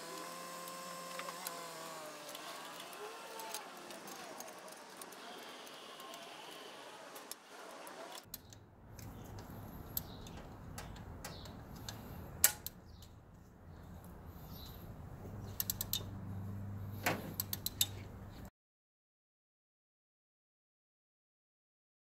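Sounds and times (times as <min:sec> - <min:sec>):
wrench clicking on metal: 0:15.5 - 0:16.1, 0:17.4 - 0:18.0.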